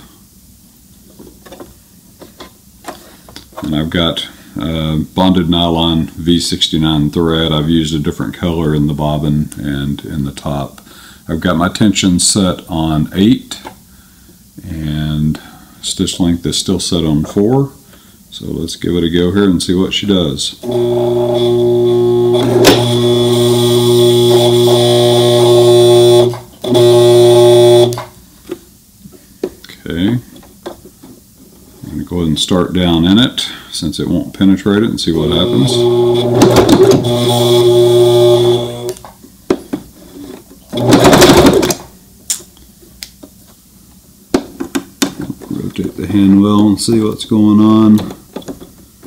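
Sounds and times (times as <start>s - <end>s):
sewing machine motor humming: 20.6s - 28.1s, 35.3s - 39.0s, 40.8s - 41.8s.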